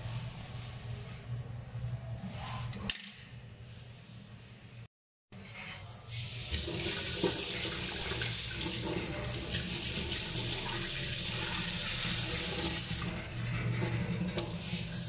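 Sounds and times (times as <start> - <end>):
faucet running into steel sink: 6.1 - 14.8.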